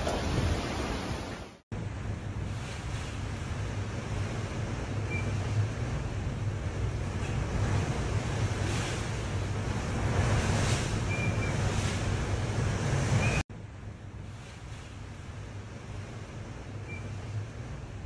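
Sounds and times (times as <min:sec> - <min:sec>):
water rushing: 0:00.0 - 0:13.4.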